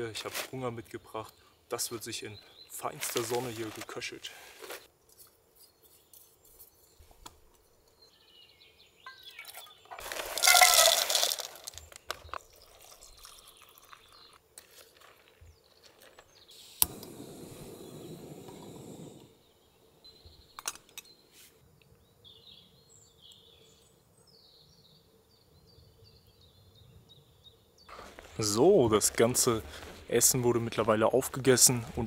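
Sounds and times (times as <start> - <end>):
water pouring into container: 10.0 - 11.8, 12.6 - 14.4.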